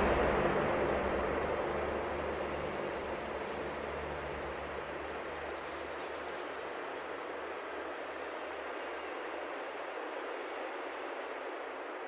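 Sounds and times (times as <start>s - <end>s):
faint high sweeping tone: 0.0s - 6.1s
steady low drone: 0.0s - 6.3s
dense noisy wash: 0.0s - 8.0s.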